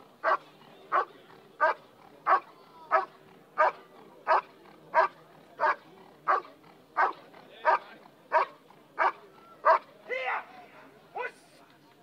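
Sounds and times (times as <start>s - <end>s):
dog barking: 0.2s - 9.8s.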